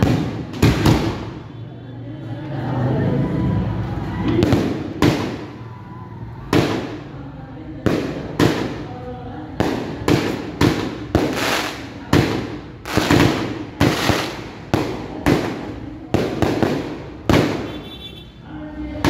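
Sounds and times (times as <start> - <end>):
fireworks bangs: 0.0 - 1.6, 4.2 - 5.8, 6.4 - 7.2, 7.8 - 18.2.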